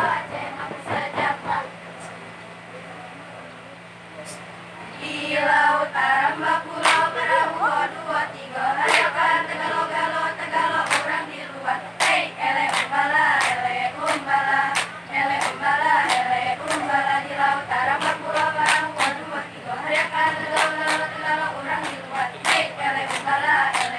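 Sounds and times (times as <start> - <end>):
girls singing in unison: 0.0 - 1.8, 5.0 - 23.9
hand claps: 6.8 - 7.2, 8.8 - 9.8, 10.8 - 11.2, 12.0 - 17.0, 17.9 - 23.9.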